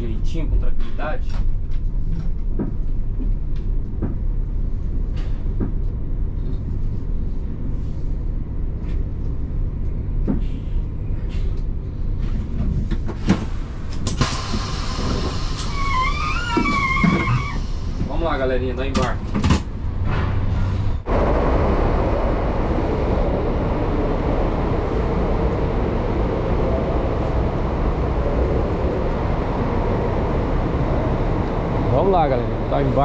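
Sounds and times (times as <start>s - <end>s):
compressed air hissing: 14.2s - 16.4s
diesel engine idling: 21.0s - 33.0s.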